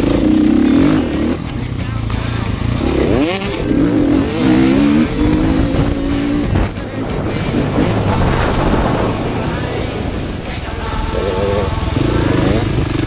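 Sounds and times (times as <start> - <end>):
motocross bike engine revving: 0.0 - 13.0
wind rush on microphone: 4.8 - 12.0.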